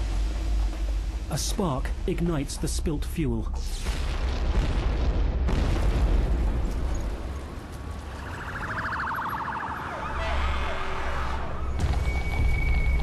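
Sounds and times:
emergency siren wailing: 8.0 - 12.6.

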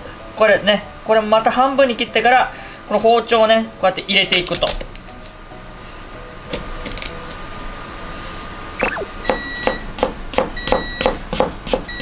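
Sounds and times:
knocks on a cutting board: 9.3 - 11.9.

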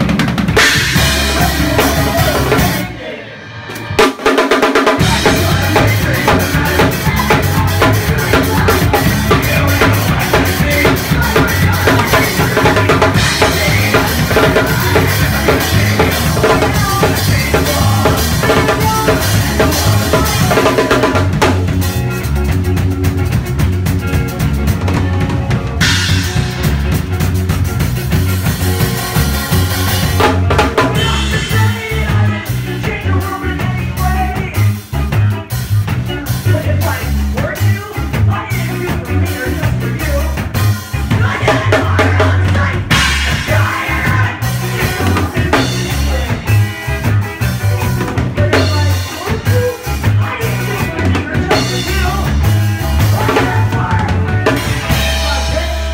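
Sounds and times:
live rock band playing: 0.0 - 55.9.

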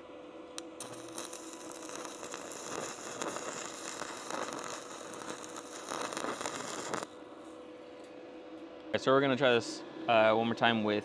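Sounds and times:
welding arc crackling: 0.6 - 7.2.

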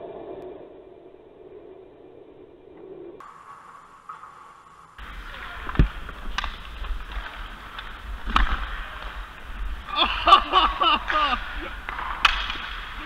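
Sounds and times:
players calling out: 5.0 - 13.0
stick knocking puck: 11.8 - 13.0.

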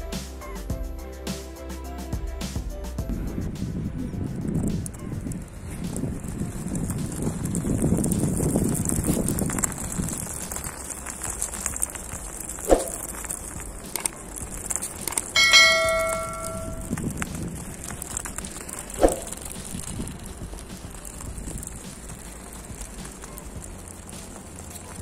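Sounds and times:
steady background noise: 0.0 - 25.0
bell-like metallic ring: 15.4 - 16.9.

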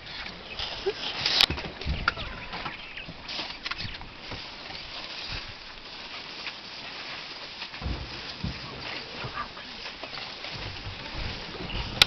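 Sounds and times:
elephants rustling through brush: 0.0 - 12.0
low thumps: 7.8 - 12.0.

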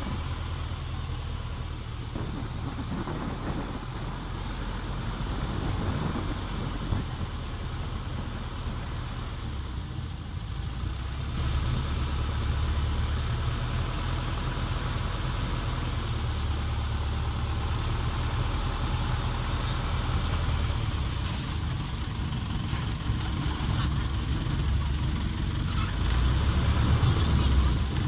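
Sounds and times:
water rushing along hull: 0.0 - 9.9
motorboat engine running: 0.0 - 10.5.

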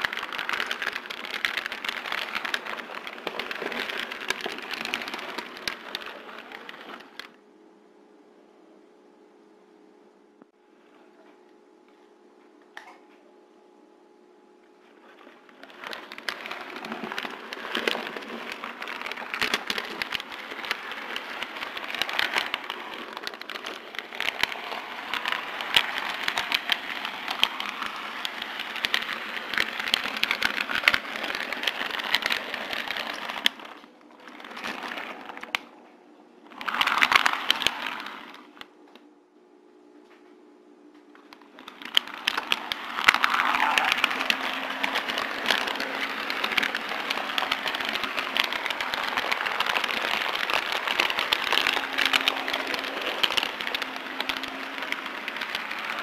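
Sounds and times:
model train wheels clicking on rails: 0.0 - 7.4, 15.2 - 35.7, 36.5 - 38.7, 41.3 - 56.0.

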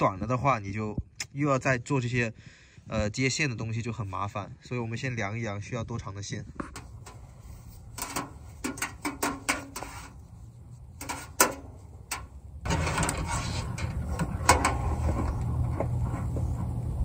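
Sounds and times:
electrical wire being handled: 6.5 - 17.0
steady rushing noise: 6.6 - 17.0.

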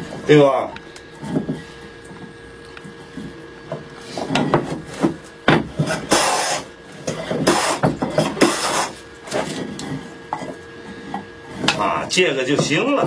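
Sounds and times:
hand plane rasping on wood: 5.8 - 9.4.

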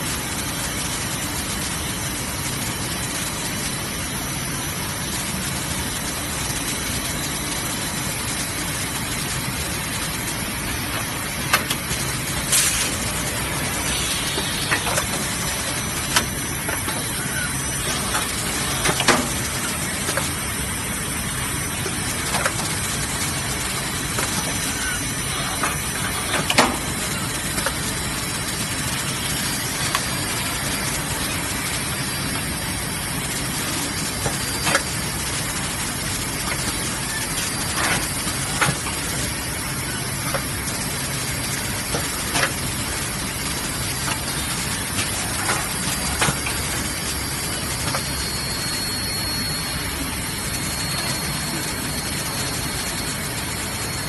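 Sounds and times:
coiling machine running: 0.0 - 54.0
factory hum: 0.0 - 54.0.

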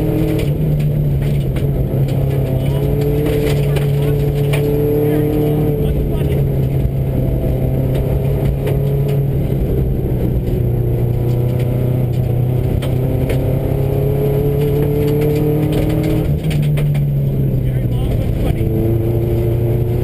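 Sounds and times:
gravel clattering against car: 0.0 - 7.0, 7.8 - 9.4, 10.2 - 13.5, 14.4 - 17.3
car engine pulling hard: 0.0 - 20.0.

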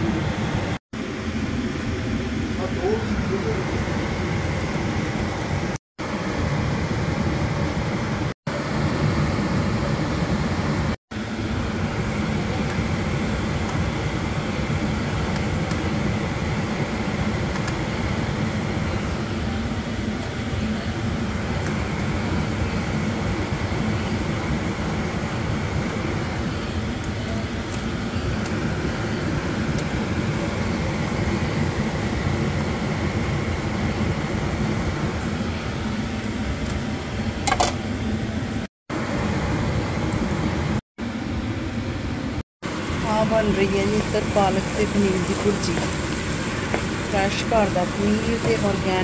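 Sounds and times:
exhaust fan whirring: 0.0 - 49.0.

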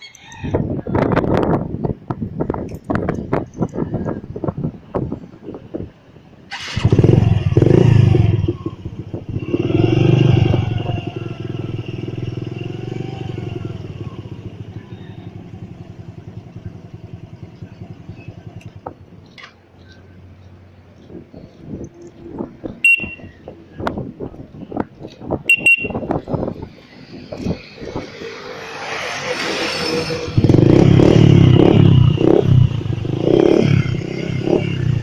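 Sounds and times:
motorcycle engine starting and idling: 6.5 - 19.6.

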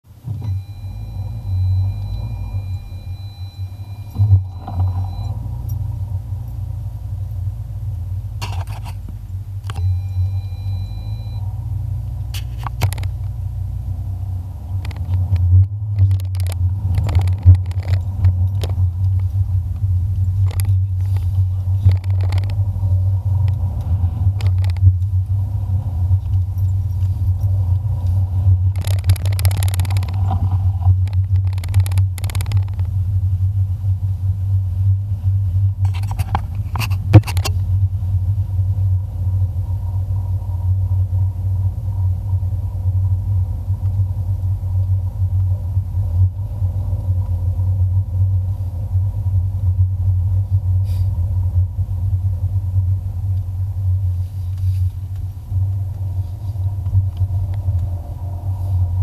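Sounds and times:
car engine droning inside cabin: 0.0 - 59.0
knocks and clicks: 14.8 - 19.3, 21.8 - 22.6, 23.5 - 25.1, 28.7 - 32.9.

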